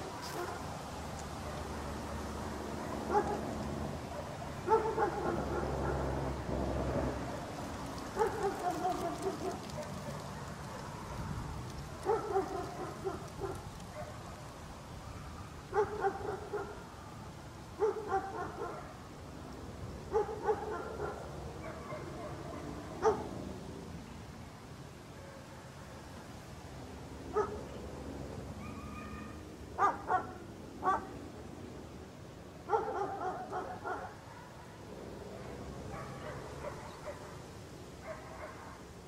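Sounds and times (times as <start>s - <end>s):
dog barking: 0.3s - 0.7s, 2.8s - 3.5s, 4.1s - 6.1s, 8.2s - 10.8s, 12.0s - 14.2s, 15.7s - 16.8s, 17.8s - 19.0s, 20.1s - 23.3s, 27.3s - 27.6s, 28.6s - 31.1s, 32.7s - 34.8s, 35.4s - 37.4s, 38.0s - 38.8s.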